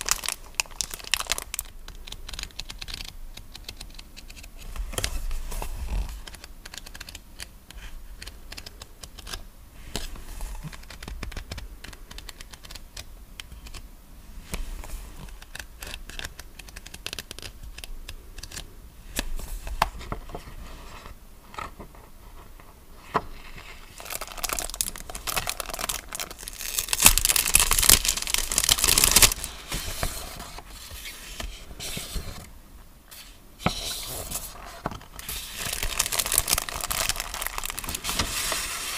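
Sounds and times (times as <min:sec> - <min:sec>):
paper crinkling: 0:00.0 - 0:07.5, 0:23.6 - 0:32.5, 0:33.9 - 0:38.9
paper rustling and page flicks: 0:35.2 - 0:38.9.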